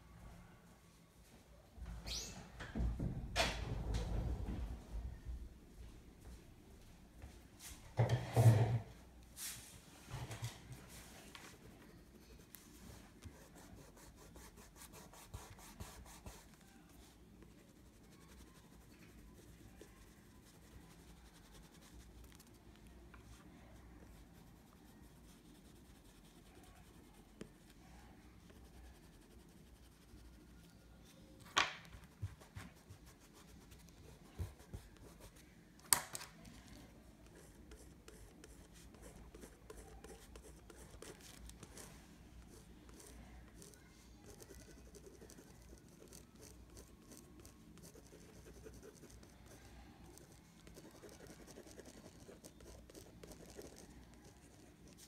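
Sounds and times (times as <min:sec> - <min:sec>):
oil pastel scratching on paper: 0:11.4 - 0:22.8, 0:24.1 - 0:27.8, 0:28.4 - 0:30.8, 0:37.3 - 0:55.0.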